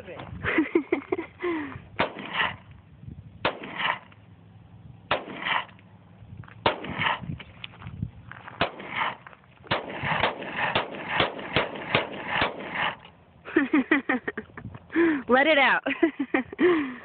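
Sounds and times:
pistol shots: 2.0s - 2.6s, 3.4s - 4.1s, 5.1s - 5.7s, 6.6s - 7.2s, 8.6s - 13.0s.

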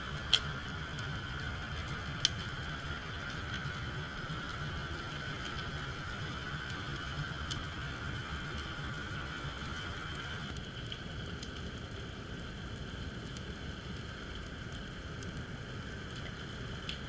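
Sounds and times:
faint high hum: 0.0s - 17.0s
underwater rumble of moving water: 0.0s - 17.0s
sharp crackling clicks: 0.1s - 1.1s, 1.8s - 2.7s, 10.5s - 12.0s, 12.8s - 17.0s.

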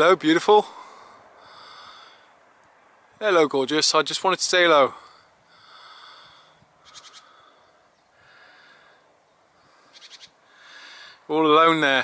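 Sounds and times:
soft slow breathing: 0.6s - 2.6s, 4.9s - 11.3s.

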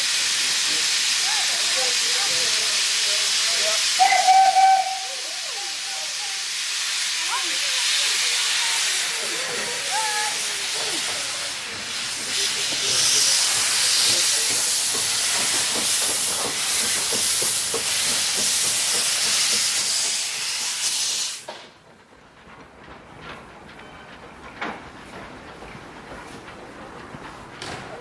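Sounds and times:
locomotive letting off steam: 0.0s - 24.4s.

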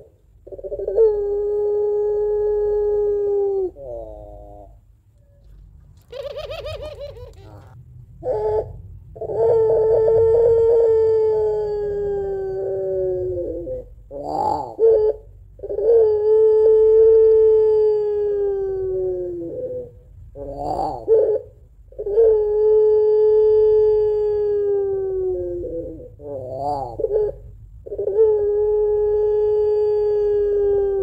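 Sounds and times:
dove long crying call: 0.0s - 31.0s
dove short rippling call: 5.3s - 10.8s.

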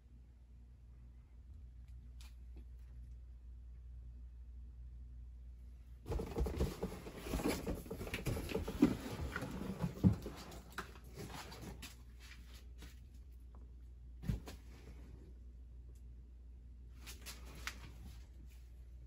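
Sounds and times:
faint low hum: 0.0s - 19.0s
rustling and scraping handling noise: 6.1s - 13.3s.

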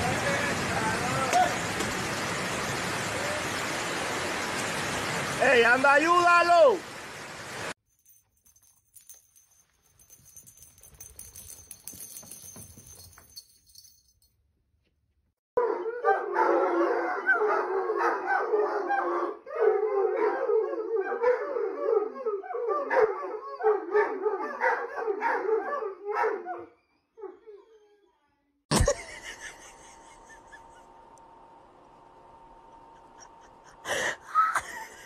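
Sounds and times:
hounds howling together: 15.6s - 26.7s.

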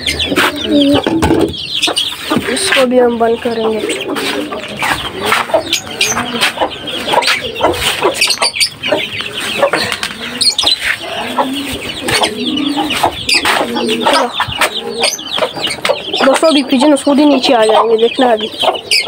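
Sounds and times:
chicks peeping: 0.0s - 19.0s
hen clucking: 0.0s - 19.0s.

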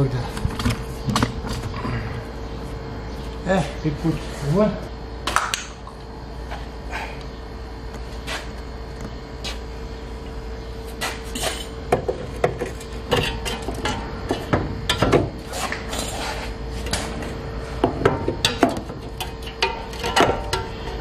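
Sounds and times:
faint hum: 0.0s - 21.0s
metal clanks and knocks: 11.4s - 15.4s, 17.8s - 21.0s.

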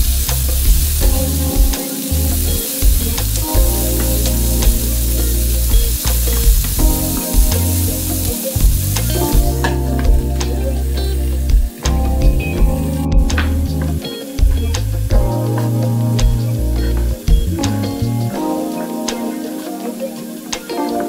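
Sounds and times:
vegetables sizzling in frying pan: 0.0s - 9.2s.

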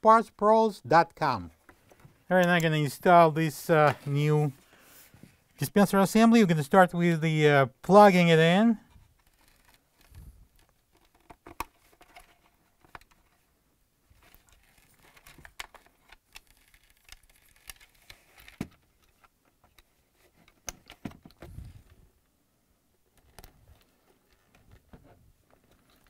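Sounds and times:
wires rustling against plastic: 8.5s - 22.2s, 23.0s - 26.0s.

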